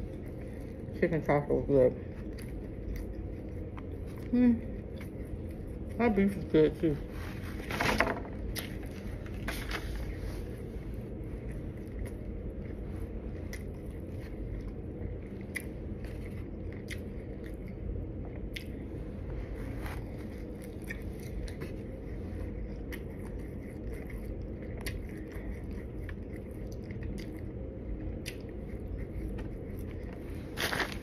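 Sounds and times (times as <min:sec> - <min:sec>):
low background hum: 0:00.0 - 0:31.0
chewing crunches and clicks: 0:02.0 - 0:06.0, 0:08.4 - 0:09.5, 0:11.2 - 0:18.9, 0:20.0 - 0:31.0.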